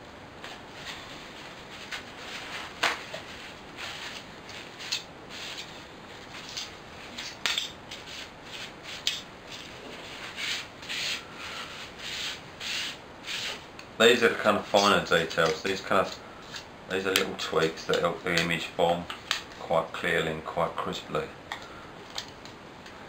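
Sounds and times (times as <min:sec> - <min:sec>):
emery cloth scraping metal: 0:00.5 - 0:13.7.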